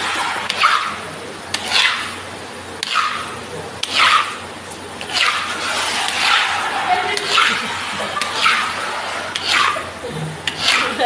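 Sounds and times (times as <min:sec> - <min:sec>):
mop swishing on wet tiles: 0:05.1 - 0:11.0.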